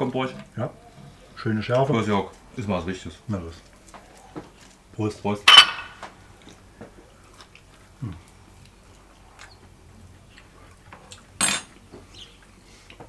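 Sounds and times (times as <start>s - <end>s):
metal spoon clattering on dish: 5.5s - 6.0s, 11.4s - 11.7s
faint cutlery sounds: 5.5s - 6.1s, 10.4s - 11.9s
person humming mm: 8.0s - 8.3s.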